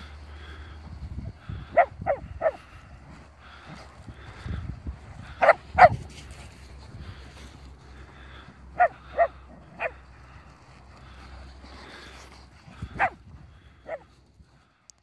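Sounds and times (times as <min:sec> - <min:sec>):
dogs barking: 0:01.5 - 0:02.9, 0:05.3 - 0:06.2, 0:08.2 - 0:10.4, 0:12.8 - 0:14.1.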